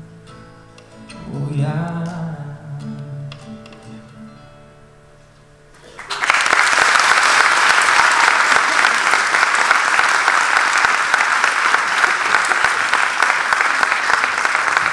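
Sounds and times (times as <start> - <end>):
audience applauding: 5.8 - 14.9.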